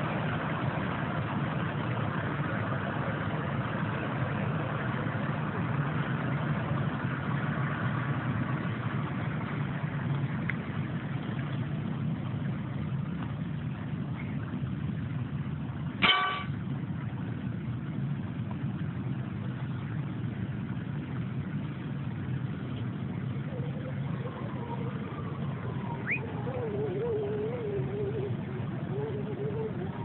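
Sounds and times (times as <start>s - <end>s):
diesel engine idling: 0.0s - 30.0s
loud horn blast: 16.0s - 16.6s
faint voices: 23.2s - 30.0s.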